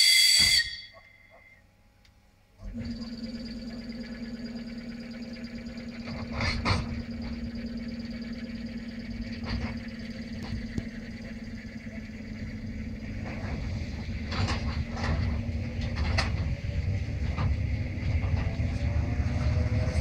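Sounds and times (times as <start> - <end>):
train electrical hum: 0.0 - 20.0
train wheels rumbling: 5.9 - 20.0
loud train clatter: 9.2 - 20.0.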